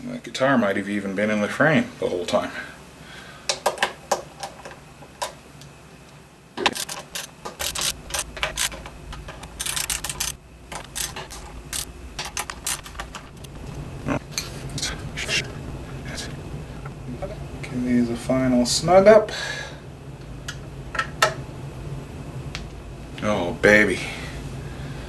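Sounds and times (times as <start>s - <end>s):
screwdriver clicking on metal screws: 6.7s - 13.5s.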